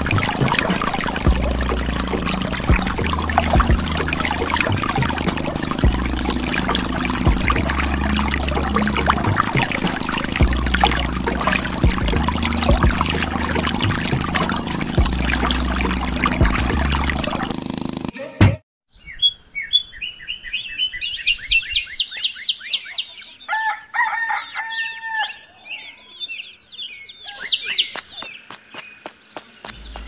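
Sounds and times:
steady low hum: 0:00.0 - 0:18.1
water pouring into puddle: 0:00.0 - 0:18.1
small birds chirping: 0:25.5 - 0:30.0.

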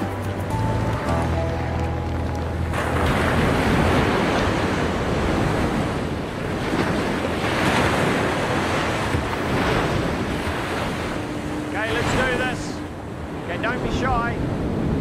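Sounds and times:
waves rushing and breaking: 0:00.1 - 0:15.0
wind gusting across microphone: 0:02.1 - 0:15.0.

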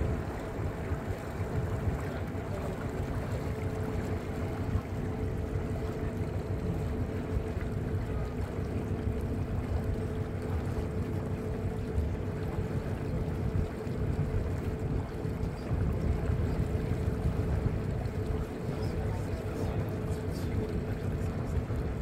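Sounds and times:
boat motor humming: 0:00.0 - 0:22.0
water rushing along hull: 0:00.0 - 0:22.0
wind buffeting microphone: 0:09.0 - 0:22.0.

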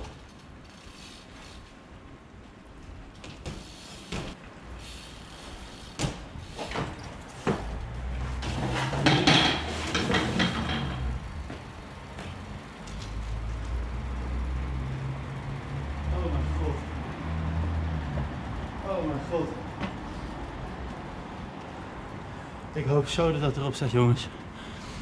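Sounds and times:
bmx bike knocks and clatters: 0:03.1 - 0:04.4, 0:05.8 - 0:12.4.

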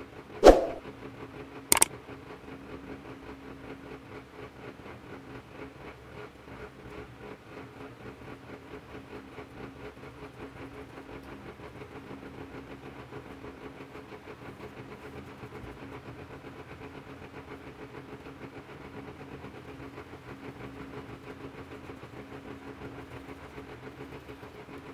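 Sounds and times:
sharp click: 0:00.4 - 0:00.8.

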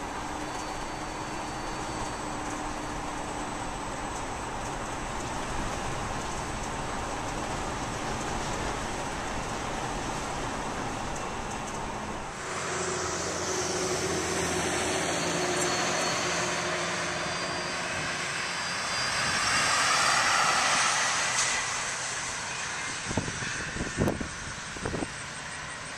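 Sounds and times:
faint steady whine: 0:00.0 - 0:10.2
bus cab ride noise: 0:00.0 - 0:25.9
bus passing by: 0:00.0 - 0:25.9.

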